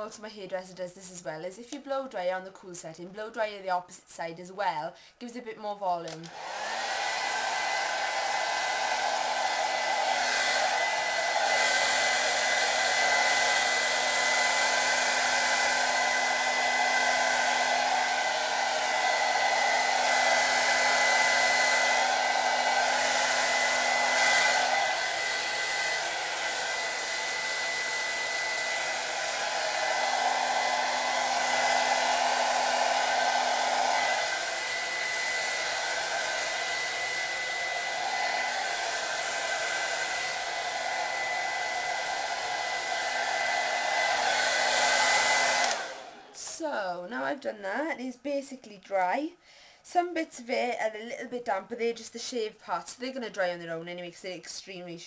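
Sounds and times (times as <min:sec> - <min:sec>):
hair dryer blowing: 0:05.6 - 0:47.2.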